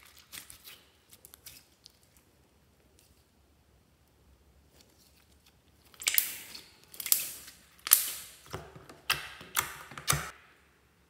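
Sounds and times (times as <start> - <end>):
slime crackling and popping: 5.0 - 10.4.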